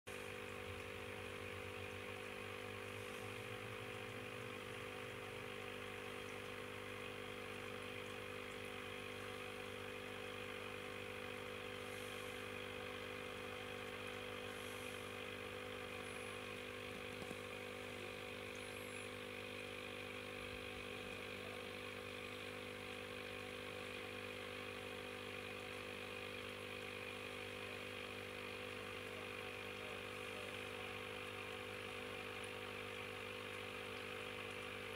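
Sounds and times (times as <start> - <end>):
small motor humming: 0.1 - 34.9.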